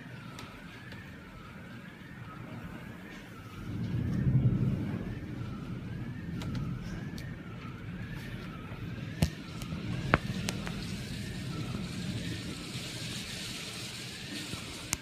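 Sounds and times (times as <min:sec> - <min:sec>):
heavy downpour: 0:00.0 - 0:15.0
siren wailing: 0:00.0 - 0:15.0
wind rushing: 0:03.3 - 0:15.0.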